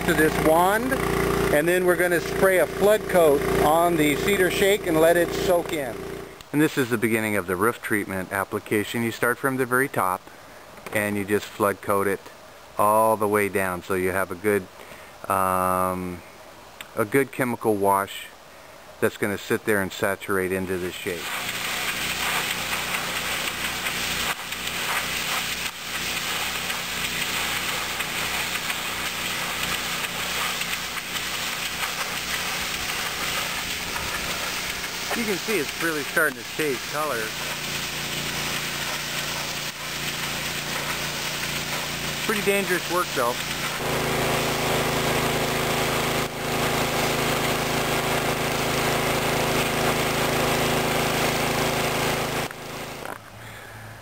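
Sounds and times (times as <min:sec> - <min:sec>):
high-pressure water jet hissing: 0:00.0 - 0:06.3, 0:21.0 - 0:53.1.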